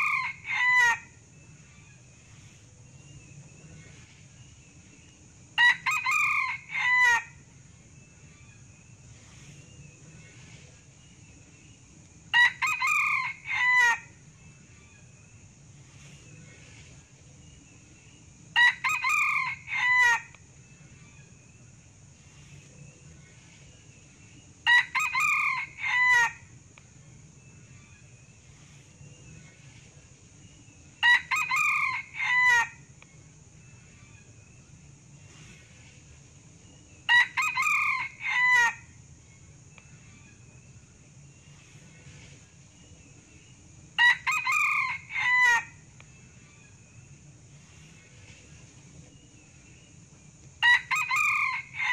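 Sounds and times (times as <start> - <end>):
rooster crowing: 0.0 - 1.1, 5.6 - 7.4, 12.3 - 14.1, 18.6 - 20.4, 24.7 - 26.4, 31.0 - 32.8, 37.1 - 38.9, 44.0 - 45.8, 50.6 - 51.9
steady high hiss: 0.0 - 51.9.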